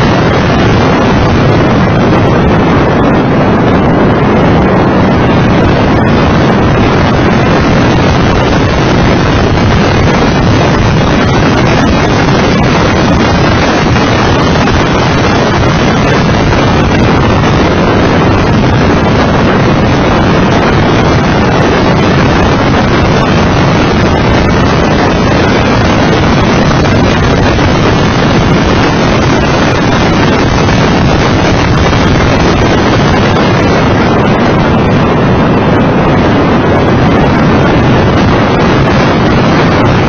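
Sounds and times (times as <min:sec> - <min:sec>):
wind buffeting on microphone: 0:00.0 - 0:40.0.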